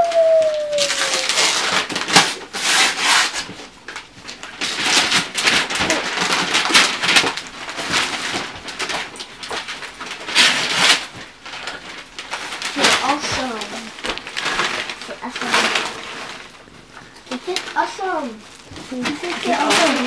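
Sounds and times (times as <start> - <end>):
wrapping paper tearing and crumpling: 0.0 - 20.0.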